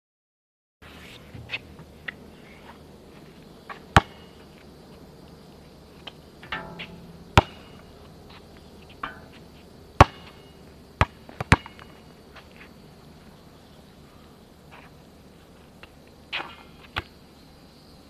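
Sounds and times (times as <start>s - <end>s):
basketball bouncing smacks: 4.0s - 4.3s, 6.4s - 7.9s, 10.0s - 10.4s, 11.0s - 11.9s.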